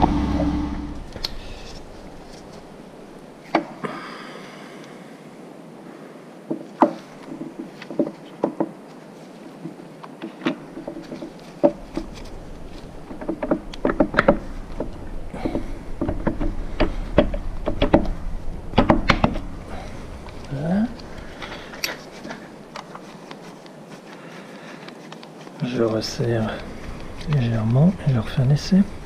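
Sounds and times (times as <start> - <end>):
low rumble: 0.0 - 3.2, 11.8 - 21.7
metal clicks and knocks: 10.1 - 23.0.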